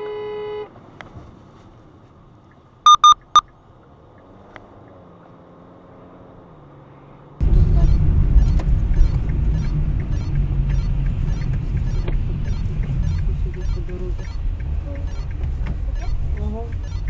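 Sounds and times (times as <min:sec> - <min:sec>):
in-car rumble: 0:02.9 - 0:17.0
faint regular ticking: 0:08.0 - 0:17.0.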